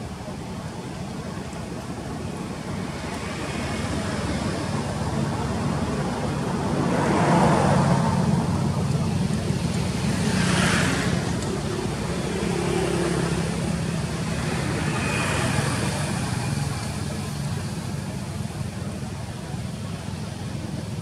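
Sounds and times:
traffic engine hum: 0.0s - 21.0s
vehicle passing by: 2.7s - 18.6s.

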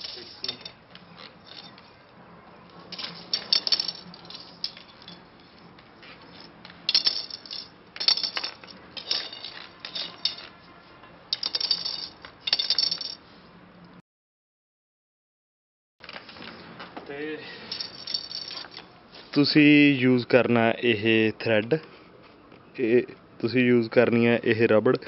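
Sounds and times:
tent pole sections clinking: 0.0s - 2.0s, 2.8s - 10.7s, 11.3s - 13.3s, 17.6s - 19.5s.

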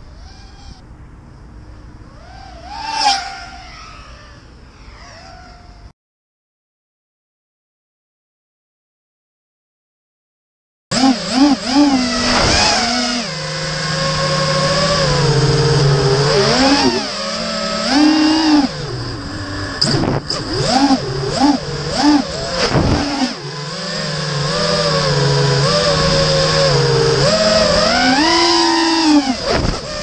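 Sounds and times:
quadcopter motors whining: 0.0s - 0.8s, 2.0s - 5.9s, 10.9s - 30.0s.

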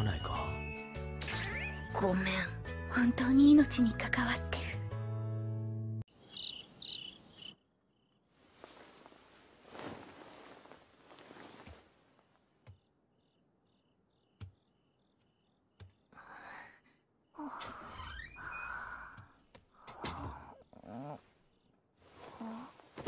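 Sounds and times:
faint crickets chirping: 6.1s - 23.0s.

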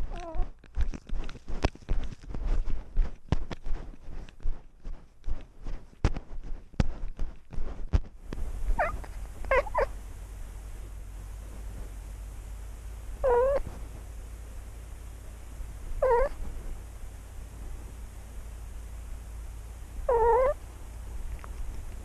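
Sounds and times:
cat meowing: 0.1s - 0.5s, 8.8s - 9.9s, 13.2s - 13.6s, 16.0s - 16.4s, 20.1s - 20.6s.

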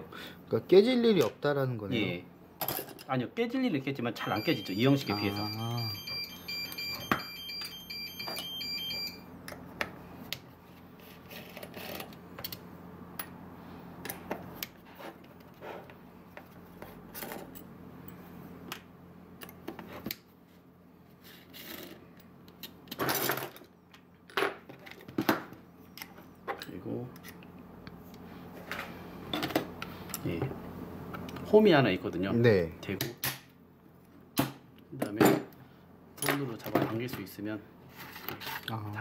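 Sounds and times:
high electronic beeping: 4.2s - 9.2s.

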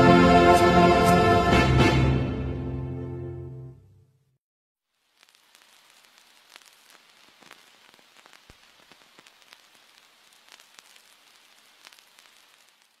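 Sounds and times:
faint steady hiss: 4.8s - 13.0s
clicks and crackles: 4.9s - 13.0s.

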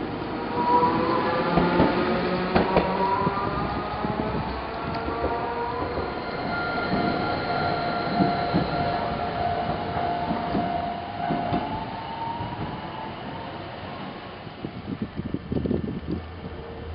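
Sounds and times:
low rumble of streetcar: 0.0s - 16.9s
streetcar whine: 0.0s - 16.9s
wheels knocking on rails: 9.6s - 11.8s.

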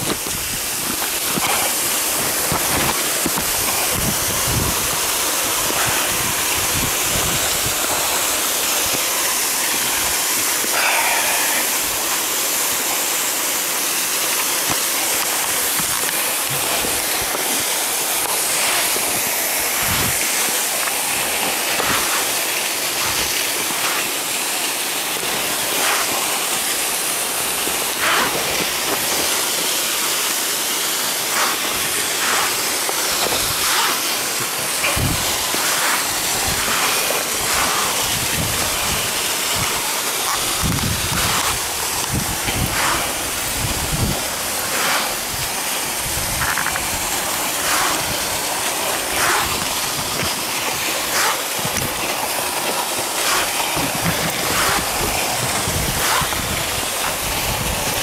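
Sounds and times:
waterfall rushing: 0.0s - 58.0s
climbing gear clicking and knocking: 31.1s - 58.0s.

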